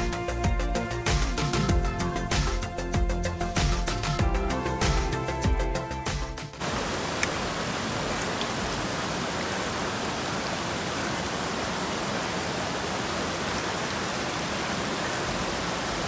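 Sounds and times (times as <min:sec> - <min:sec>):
stream rushing over rocks: 0:06.6 - 0:16.0.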